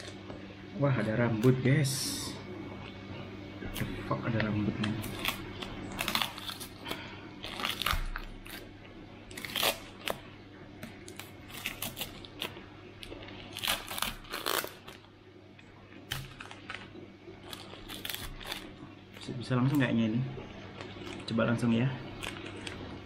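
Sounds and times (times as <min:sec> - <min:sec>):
tape crinkling: 0:04.8 - 0:08.7, 0:09.3 - 0:10.2, 0:10.9 - 0:15.1, 0:16.1 - 0:19.4, 0:22.1 - 0:22.9
packing tape ripping: 0:05.0 - 0:08.6, 0:09.3 - 0:10.2, 0:11.1 - 0:12.5, 0:13.5 - 0:15.0, 0:17.5 - 0:18.7.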